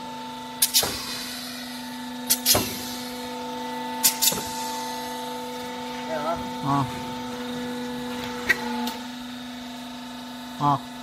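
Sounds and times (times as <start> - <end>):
hydraulic power unit hum: 0.0 - 11.0.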